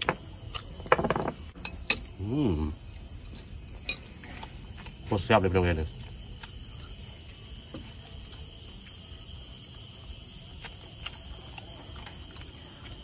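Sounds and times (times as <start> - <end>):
person chewing: 9.8 - 13.0.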